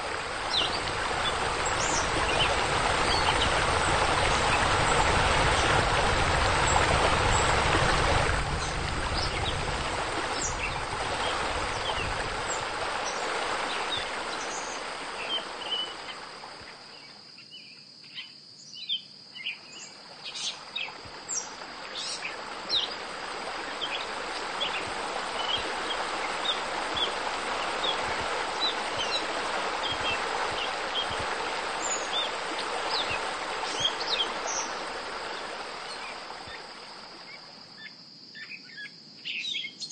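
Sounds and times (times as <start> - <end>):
water rushing: 0.0 - 16.9, 20.0 - 37.6.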